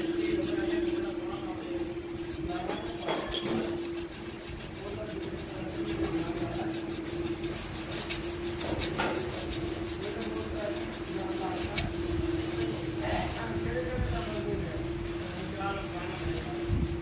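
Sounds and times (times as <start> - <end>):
hand scraping inside metal bore: 0.0 - 17.0
steady hum: 0.0 - 17.0.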